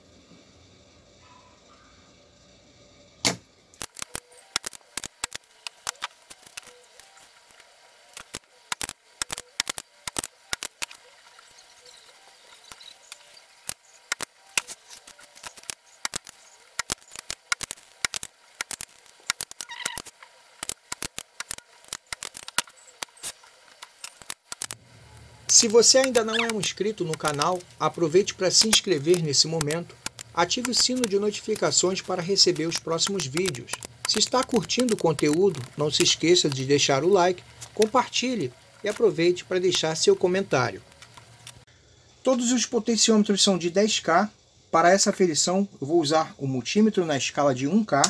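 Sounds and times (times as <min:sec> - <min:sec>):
desoldering pump snapping: 0:03.2 - 0:41.6
circuit board handling clicks: 0:12.7 - 0:24.8.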